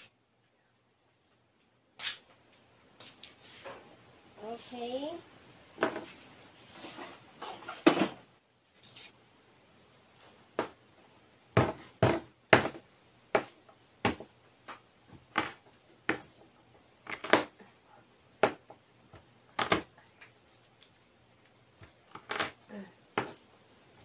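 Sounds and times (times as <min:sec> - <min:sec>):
knife chopping on plastic board: 0:11.6 - 0:12.8, 0:13.4 - 0:14.3.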